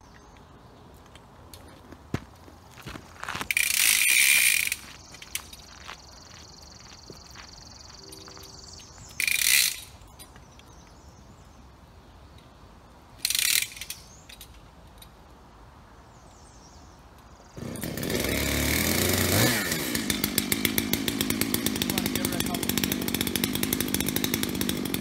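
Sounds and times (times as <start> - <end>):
chainsaw running: 3.5 - 10.1, 17.6 - 25.0.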